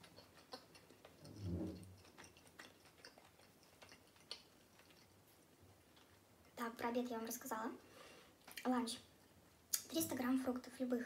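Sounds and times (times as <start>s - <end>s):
wet mouth chewing clicks: 0.0s - 5.3s, 8.4s - 8.7s.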